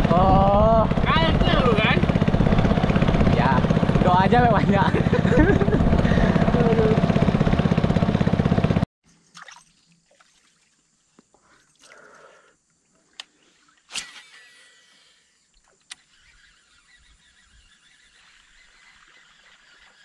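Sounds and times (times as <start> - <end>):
boat engine running: 0.0 - 8.9, 16.0 - 20.0.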